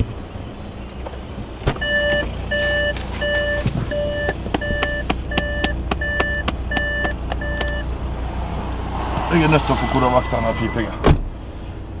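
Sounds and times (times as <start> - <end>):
car engine hum: 0.0 - 12.0
car warning beeper short beeps: 1.8 - 7.9, 9.9 - 11.0.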